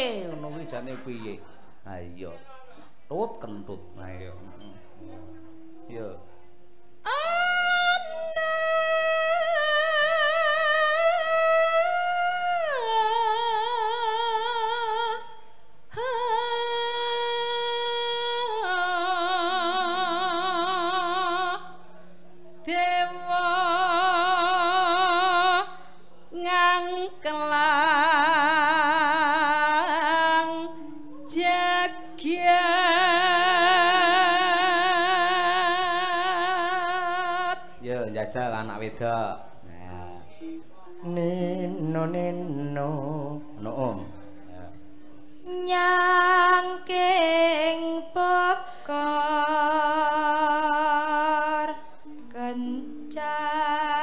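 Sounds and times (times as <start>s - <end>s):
woman singing with vibrato: 6.9s - 21.9s, 22.6s - 37.8s, 40.1s - 44.2s, 45.2s - 54.0s.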